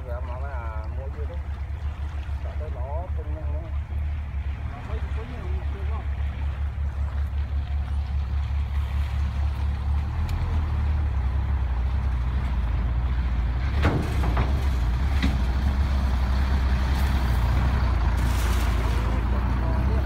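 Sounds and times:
moving water hiss: 14.0 - 20.0.

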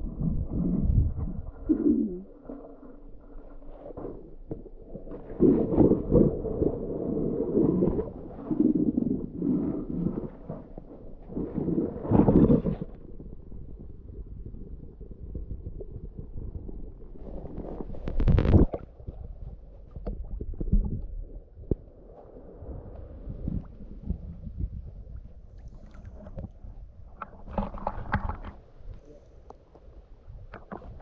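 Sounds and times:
muffled underwater rumbling and gurgling: 0.0 - 31.0.

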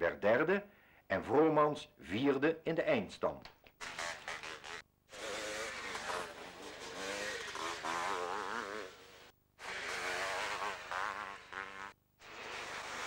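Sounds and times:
motocross motorcycle engines revving: 4.0 - 13.0.

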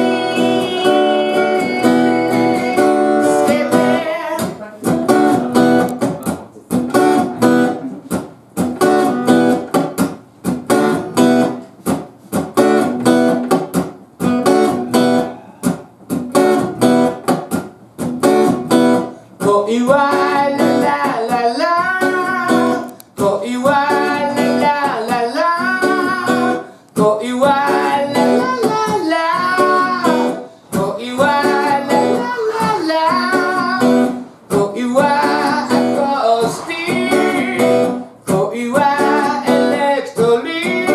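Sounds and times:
man singing: 0.0 - 6.4, 19.4 - 40.9
acoustic guitar strumming: 0.0 - 40.9.

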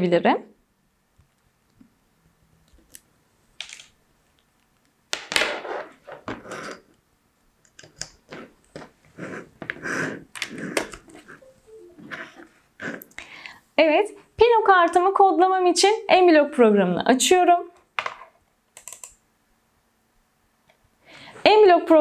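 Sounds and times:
cable rustling and scraping: 8.0 - 11.4.

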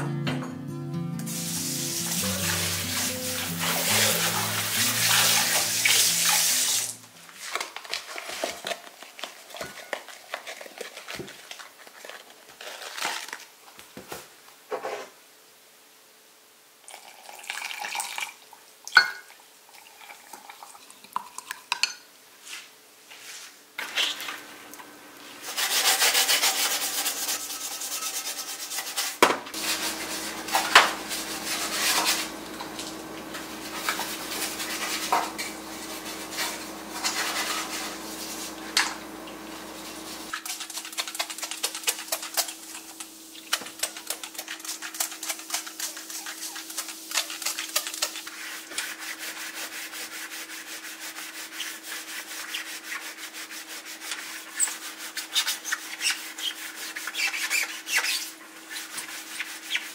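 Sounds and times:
rubbing on steel stovetop: 25.3 - 59.9
scratchy paste mixing: 25.4 - 59.9.

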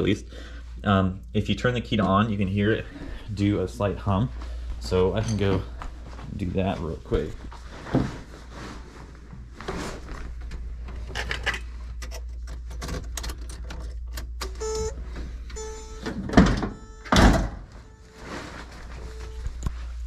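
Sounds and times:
car warning buzzer beeping: 14.5 - 18.2.

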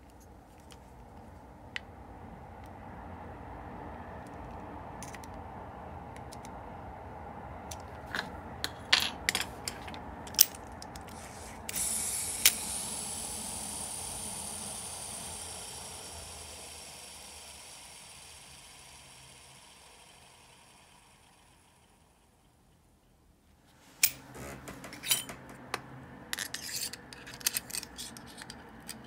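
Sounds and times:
reel spool whirring: 11.2 - 22.6.

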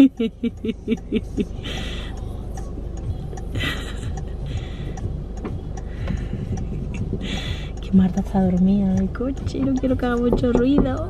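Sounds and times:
rhythmic voice syllables: 0.0 - 5.1
low hum inside car: 0.0 - 11.0
faint ticks: 0.6 - 11.0.

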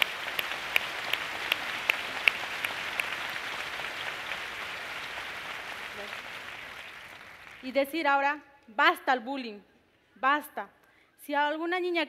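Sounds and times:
single sharp claps: 0.0 - 7.6
audience applauding: 0.0 - 7.8.

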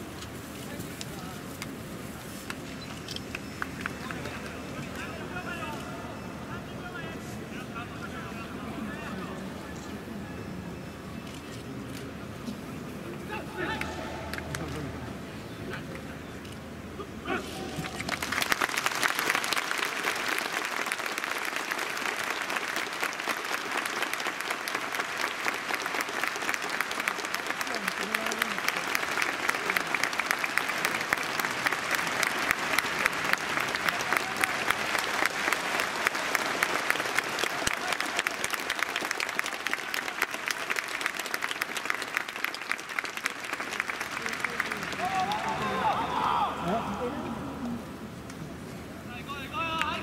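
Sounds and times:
crowd applause: 17.7 - 47.7.

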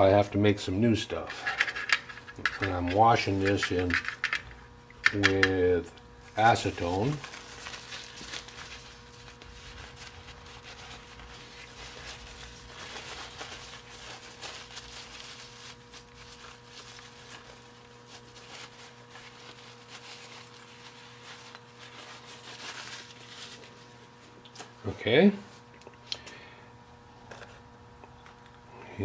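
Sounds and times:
low electrical hum: 0.0 - 29.0
small parts clicking and rustling: 1.4 - 5.6.

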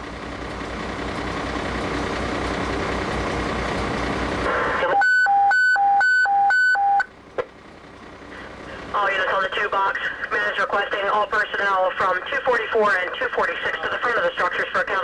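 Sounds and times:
fire engine running: 0.0 - 15.0.

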